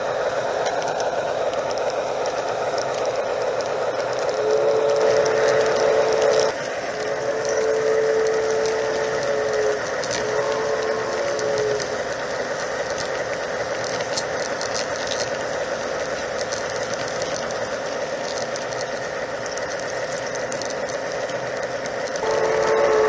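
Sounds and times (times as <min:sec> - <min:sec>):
model train rattling on track: 0:00.0 - 0:23.0
train whistle: 0:04.3 - 0:12.0, 0:22.1 - 0:23.0.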